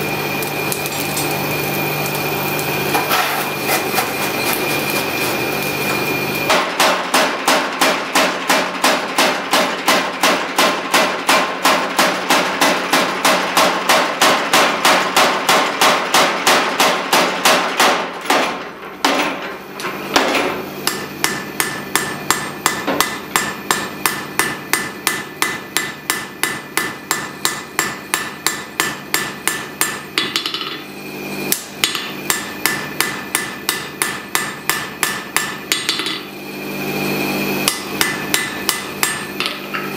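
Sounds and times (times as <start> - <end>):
hammer striking steel on anvil: 6.5 - 19.4, 20.2 - 30.9, 31.5 - 36.3, 37.6 - 39.9.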